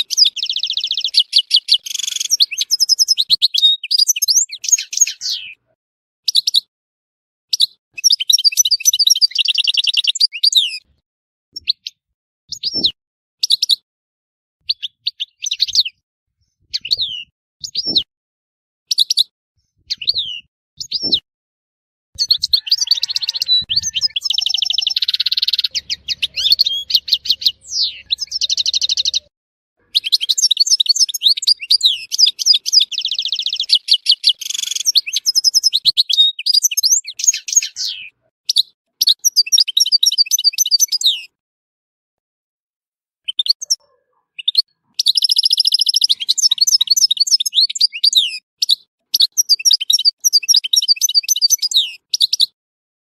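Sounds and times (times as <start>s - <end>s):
finch falling high calls: 0.0s - 5.6s, 22.2s - 41.3s
bird song of twittering trills: 0.0s - 6.7s, 7.5s - 10.9s, 11.6s - 13.8s, 14.6s - 18.1s, 18.9s - 21.2s, 22.2s - 41.4s, 43.2s - 52.6s.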